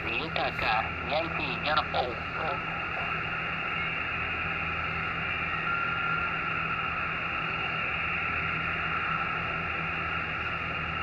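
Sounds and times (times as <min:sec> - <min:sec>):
low hum: 0:00.0 - 0:11.0
radio receiver hiss: 0:00.0 - 0:11.0
thin carrier whistle: 0:05.0 - 0:09.3.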